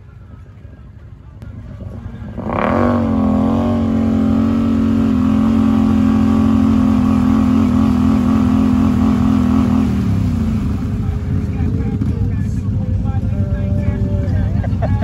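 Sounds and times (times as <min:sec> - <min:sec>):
utility vehicle engine revving: 0:01.4 - 0:13.0.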